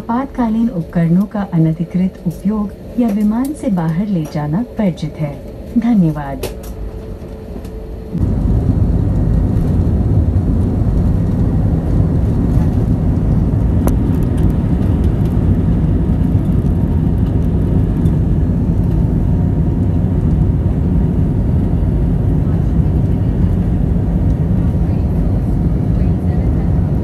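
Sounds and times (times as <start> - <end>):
jet engines at take-off: 0.0 - 27.0
take-off roll rumble: 8.0 - 27.0.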